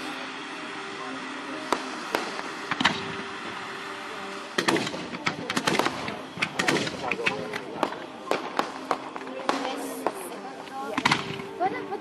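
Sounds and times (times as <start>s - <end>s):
firework shells bursting: 1.6s - 10.3s
firework cracks and pops: 1.6s - 11.6s.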